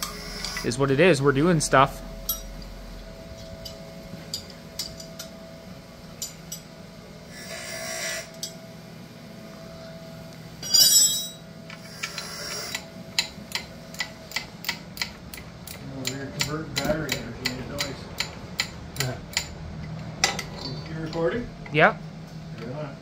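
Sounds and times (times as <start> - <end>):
hand tools clinking on metal: 10.6 - 11.4.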